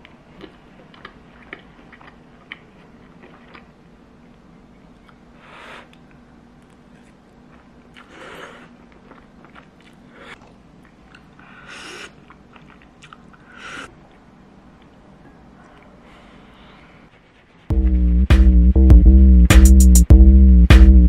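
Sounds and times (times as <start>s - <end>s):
chewing: 0.0s - 5.2s, 5.8s - 16.8s
faint steady hum: 0.0s - 18.2s.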